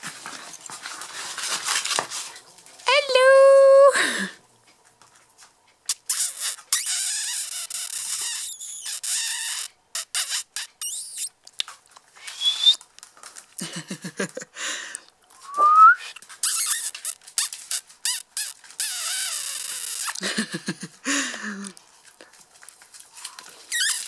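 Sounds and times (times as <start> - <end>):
puppy paws pattering on floor: 0.0 - 3.5, 4.6 - 6.7, 10.8 - 14.4, 16.2 - 24.0
whistle-like squeaks: 6.1 - 11.3, 12.2 - 12.8, 15.4 - 16.9, 23.7 - 24.0.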